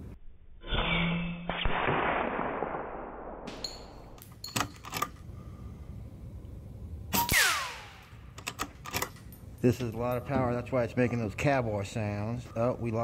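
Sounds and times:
ricochet whine: 7.1s - 9.1s.

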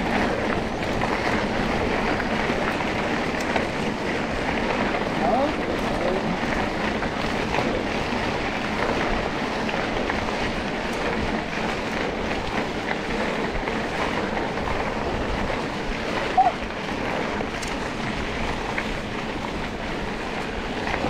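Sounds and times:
vehicle engine: 0.0s - 21.0s.

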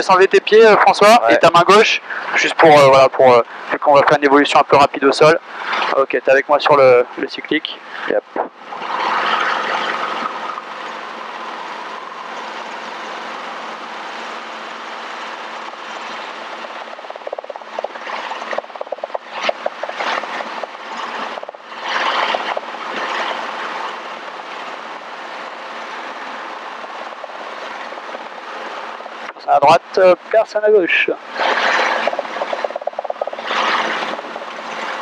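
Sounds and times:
helicopter rotor and engine drone: 0.0s - 35.0s
rushes of noise: 7.8s - 30.4s, 31.1s - 35.0s.

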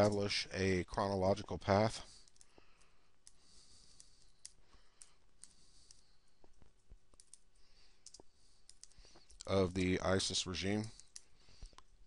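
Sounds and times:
keyboard keys clicking: 4.0s - 9.8s.

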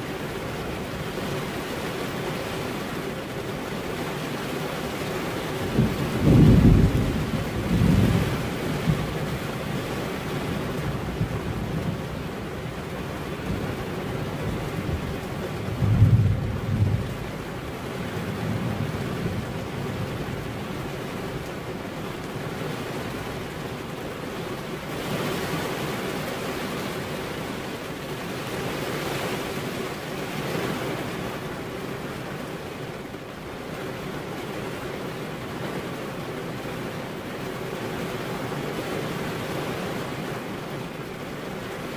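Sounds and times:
steady rain: 0.0s - 41.9s
thunder rumbling: 5.6s - 12.7s, 13.3s - 21.5s.

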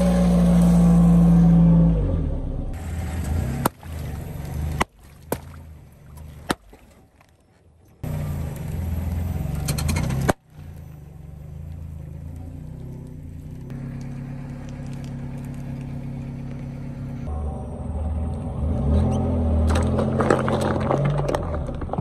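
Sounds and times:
car engine running: 8.0s - 22.0s.

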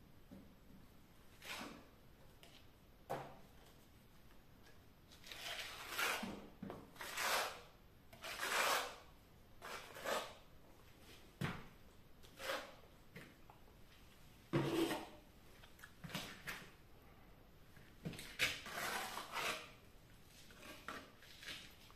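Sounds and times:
knife scraping wet plaster: 1.4s - 2.6s, 5.1s - 10.4s, 12.2s - 12.8s, 18.1s - 21.9s.

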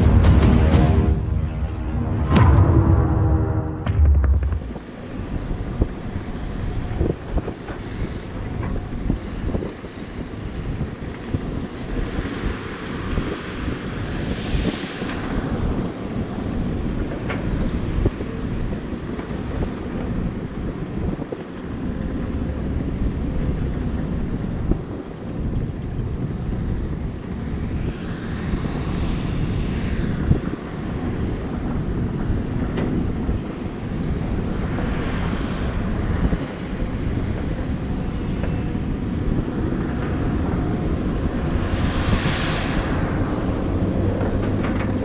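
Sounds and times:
excavator diesel engines rumbling: 0.0s - 13.9s, 42.8s - 45.0s
diesel engines rumbling: 0.0s - 14.3s, 15.0s - 45.0s
wind buffeting microphone: 1.1s - 45.0s.

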